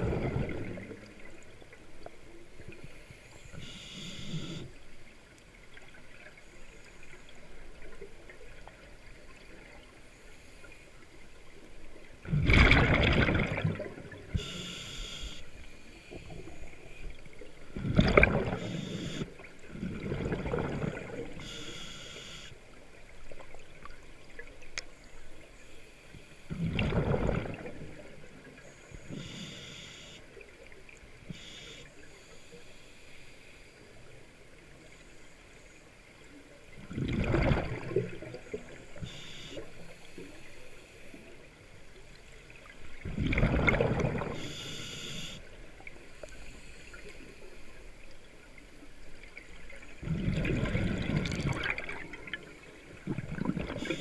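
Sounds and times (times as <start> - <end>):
exhaled bubbles rushing: 0.0 - 1.2, 12.2 - 14.3, 17.8 - 18.8, 19.6 - 21.4, 26.5 - 28.0, 36.9 - 38.5, 43.0 - 44.4, 50.0 - 54.0
regulator hissing inhalations: 3.5 - 4.7, 14.4 - 15.4, 44.4 - 45.4.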